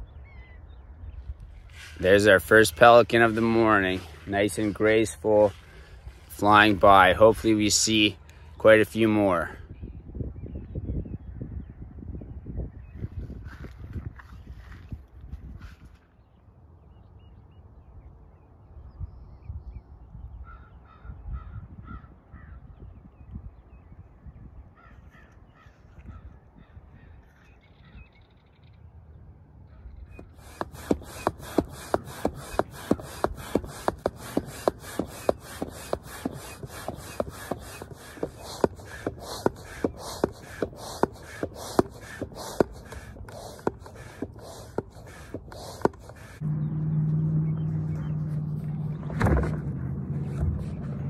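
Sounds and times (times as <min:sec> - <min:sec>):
hand pump strokes with clicks: 0:30.2 - 0:46.4.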